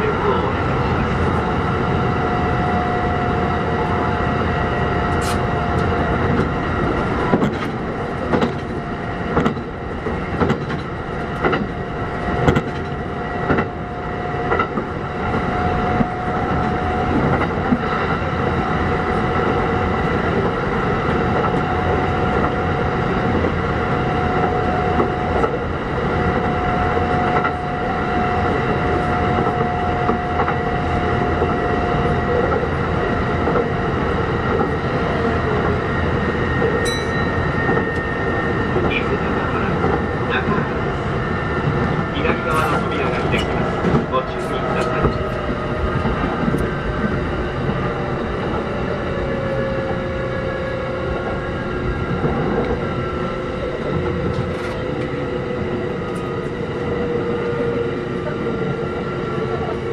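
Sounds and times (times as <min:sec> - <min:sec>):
train rolling noise: 0:00.0 - 0:59.9
wheels clacking over rails: 0:05.1 - 0:13.8
held tone: 0:36.8 - 0:38.6.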